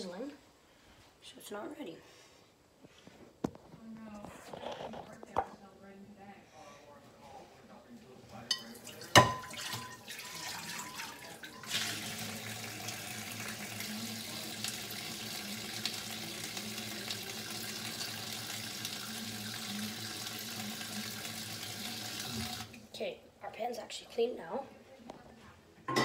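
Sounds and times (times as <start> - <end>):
faucet running into sink: 8.6 - 22.8.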